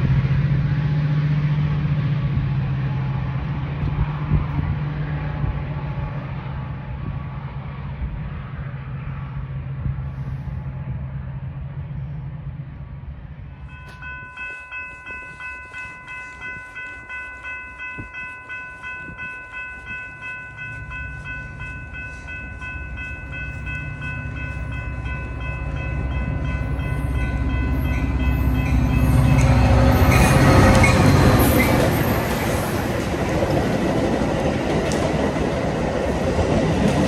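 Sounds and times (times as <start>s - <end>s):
diesel locomotive rumble: 0.0s - 37.0s
railroad crossing bell ringing: 13.5s - 33.5s.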